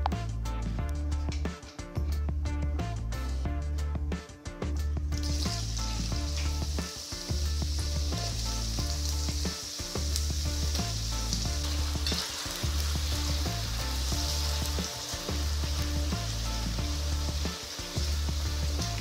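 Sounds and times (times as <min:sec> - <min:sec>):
background music with bass line: 0:00.0 - 0:19.0
potatoes sizzling in oil: 0:05.2 - 0:19.0.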